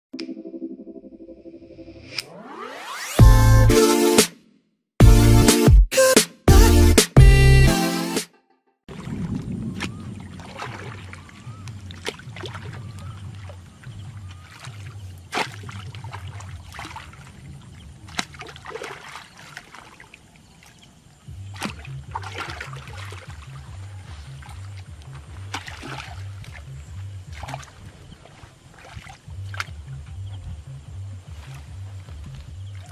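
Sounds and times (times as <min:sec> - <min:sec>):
water splashing and sloshing: 0:08.9 - 0:32.9
hoe chopping into wet mud: 0:15.3 - 0:16.4, 0:21.6 - 0:23.4.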